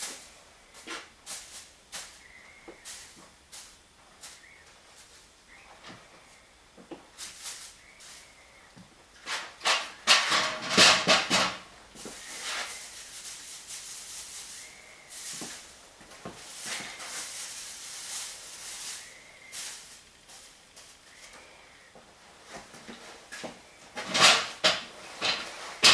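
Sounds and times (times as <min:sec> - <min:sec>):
spray hissing: 0:00.0 - 0:06.4, 0:07.1 - 0:08.6, 0:12.0 - 0:21.8
plastic sheeting crinkling: 0:07.0 - 0:08.4, 0:09.2 - 0:21.5.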